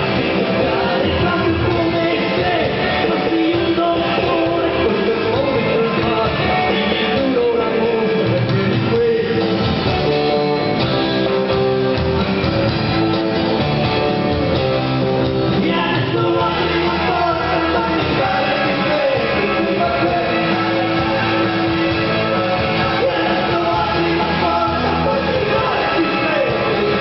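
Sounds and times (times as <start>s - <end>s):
person singing: 0.0s - 9.9s, 15.5s - 27.0s
drums: 0.0s - 27.0s
electric bass: 0.0s - 27.0s
electric guitar: 0.0s - 27.0s.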